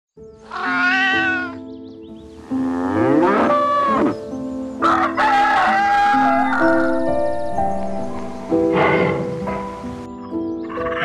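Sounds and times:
background music with held notes: 0:00.2 - 0:11.0
farm animal calls: 0:00.4 - 0:07.2, 0:08.7 - 0:09.7, 0:10.6 - 0:11.0
rooster crowing: 0:04.8 - 0:07.2.

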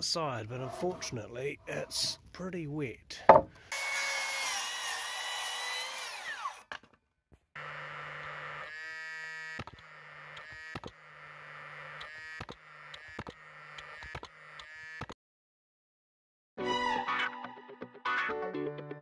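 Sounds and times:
nailer whirring and firing: 0:07.6 - 0:15.2.

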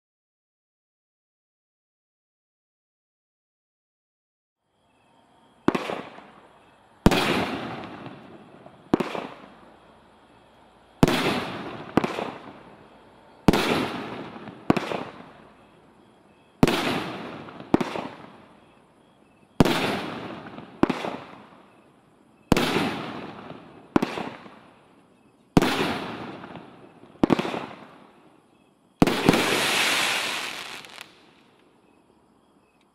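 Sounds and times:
firework crackle: 0:11.0 - 0:15.6, 0:29.0 - 0:31.6.

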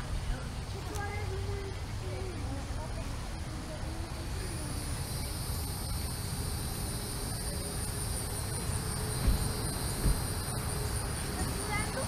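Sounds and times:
insects trilling: 0:03.0 - 0:12.0
low thump: 0:09.2 - 0:10.3.

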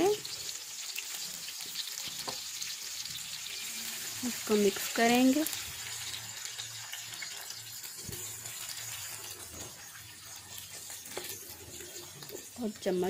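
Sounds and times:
onions sizzling in hot oil: 0:00.0 - 0:13.0
wooden spoon stirring onions: 0:03.9 - 0:13.0.

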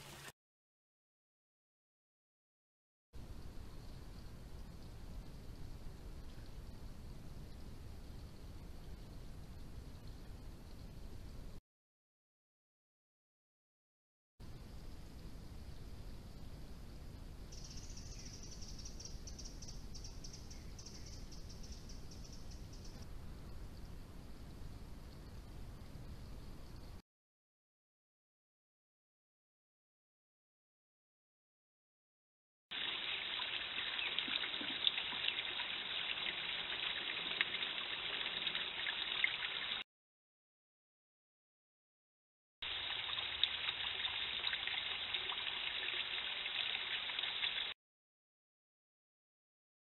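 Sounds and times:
faint background hiss: 0:14.5 - 0:27.0
water trickling: 0:32.7 - 0:39.8, 0:42.6 - 0:47.7.

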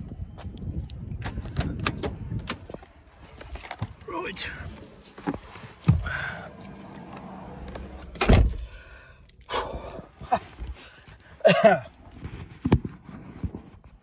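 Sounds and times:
rustling and handling noises: 0:02.6 - 0:06.0
car door shutting: 0:05.8 - 0:08.7
person groaning: 0:06.0 - 0:06.5.

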